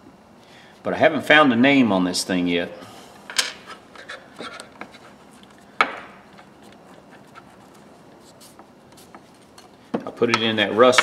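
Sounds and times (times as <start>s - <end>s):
rag rubbing over metal: 3.7s - 5.6s, 6.2s - 9.7s.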